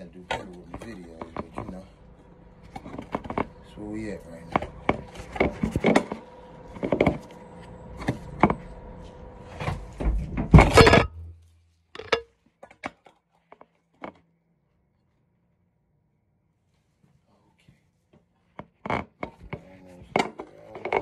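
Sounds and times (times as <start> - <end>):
phone handling noise: 12.0 - 12.3.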